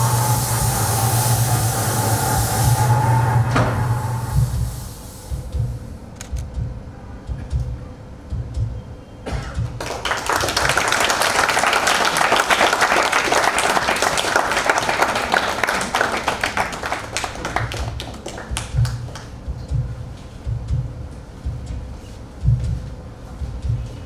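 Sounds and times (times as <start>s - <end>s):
audience applauding: 9.8s - 19.4s.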